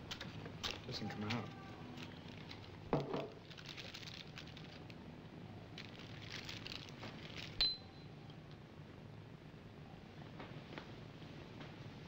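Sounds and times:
paper wrapper crinkling: 0.0 - 5.0, 5.7 - 7.6.

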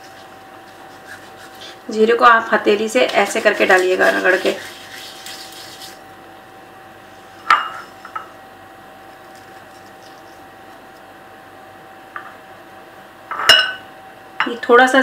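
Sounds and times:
faint steady hum: 0.0 - 15.0
glass bowl clinking: 7.4 - 8.3, 13.3 - 13.8.

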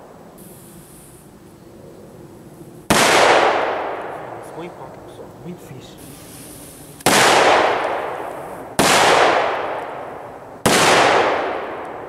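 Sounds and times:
firecrackers exploding: 2.9 - 4.2, 6.0 - 12.0
bang echoing among trees: 2.9 - 4.4, 7.0 - 12.0.

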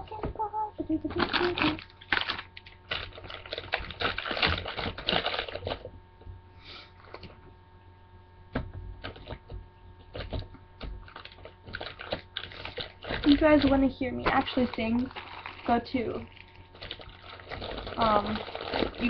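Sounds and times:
plastic bottles clattering: 11.1 - 19.0.

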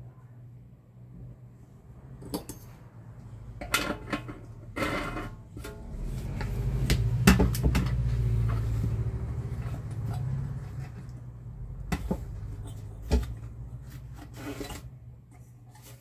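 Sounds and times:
low rumble: 5.6 - 12.5.

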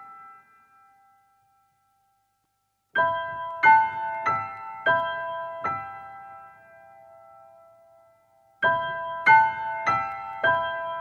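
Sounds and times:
solo piano notes: 3.0 - 11.0.

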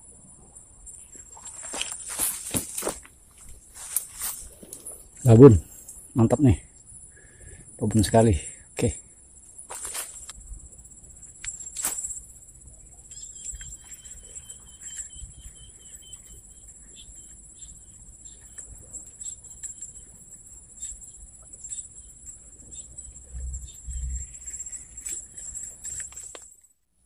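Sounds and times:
insects buzzing: 0.0 - 26.5
repeated chirping call: 13.0 - 20.0.

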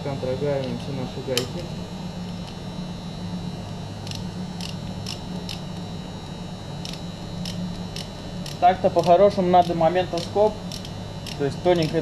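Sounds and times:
low steady hum: 0.0 - 12.0
wrench clicking: 6.8 - 12.0.

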